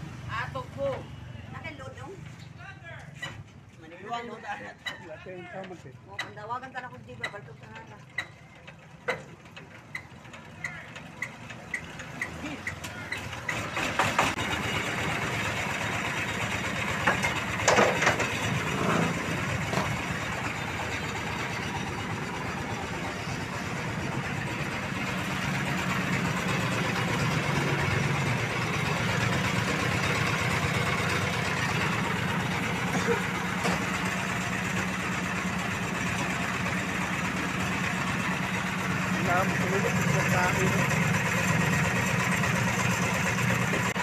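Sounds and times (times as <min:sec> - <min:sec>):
small engine cranking and running: 0:05.6 - 0:44.0
loud metal clanks: 0:16.9 - 0:22.2.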